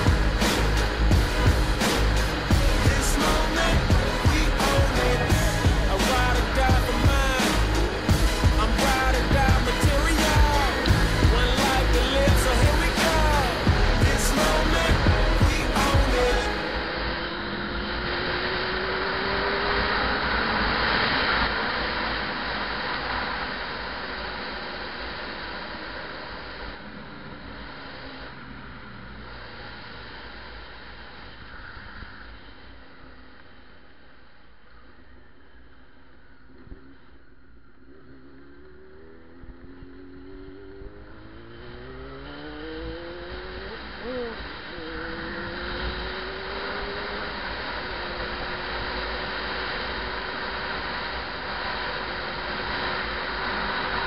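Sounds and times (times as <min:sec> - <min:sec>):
motorcycle engine accelerating: 0:00.0 - 0:24.6, 0:36.4 - 0:54.0.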